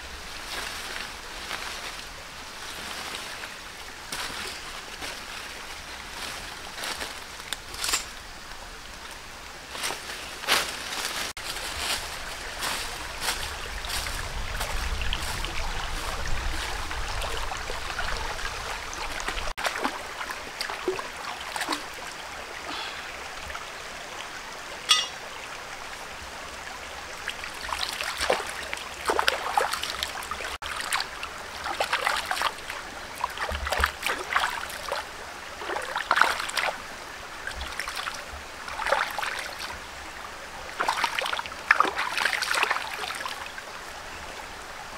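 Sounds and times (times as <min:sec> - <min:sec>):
stream trickling: 0:00.0 - 0:44.9
footsteps in dry leaves: 0:00.3 - 0:08.1, 0:09.7 - 0:16.8
splashing in water: 0:12.5 - 0:22.1, 0:27.3 - 0:39.8, 0:40.7 - 0:43.5.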